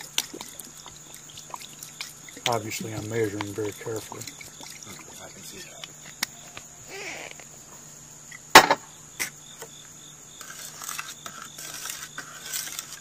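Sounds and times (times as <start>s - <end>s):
spoon scraping metal bowl: 0.5s - 5.8s, 10.4s - 13.0s
sharp knock: 8.6s - 8.8s.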